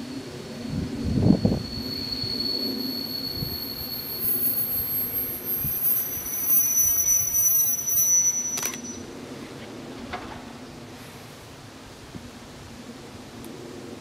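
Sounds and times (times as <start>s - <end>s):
train wheels squealing: 0.0s - 9.2s
low train rumble: 0.0s - 14.0s.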